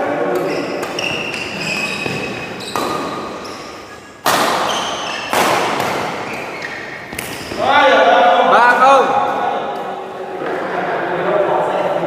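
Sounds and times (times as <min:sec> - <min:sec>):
racket striking shuttlecock: 0:00.3 - 0:07.6
shoes squeaking on court: 0:00.3 - 0:07.6.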